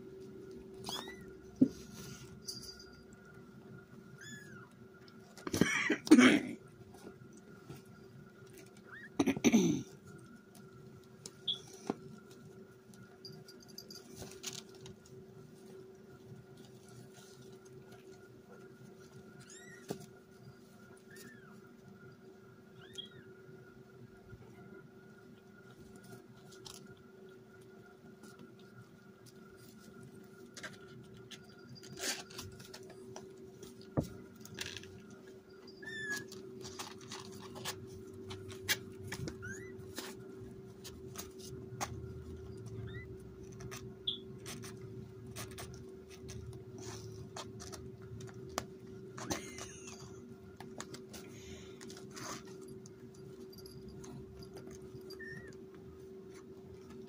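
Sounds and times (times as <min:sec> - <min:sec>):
steady low hum: 0:00.0 - 0:57.0
kittens squeaky mews: 0:00.8 - 0:01.4, 0:22.8 - 0:23.3, 0:39.3 - 0:39.9
kittens scrabbling and clawing: 0:09.9 - 0:21.6, 0:25.6 - 0:57.0.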